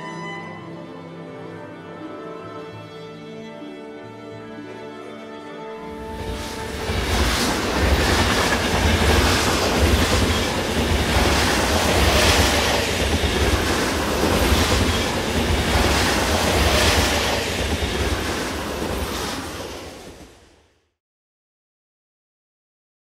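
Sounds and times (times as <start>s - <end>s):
train rumbling on rails: 5.8s - 20.7s
wheel and track rattling hiss: 5.9s - 20.5s.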